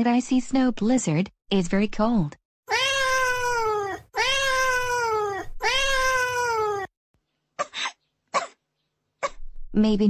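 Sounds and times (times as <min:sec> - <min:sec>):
cartoon crying wails: 0:02.7 - 0:06.9
short coughs: 0:07.6 - 0:08.6.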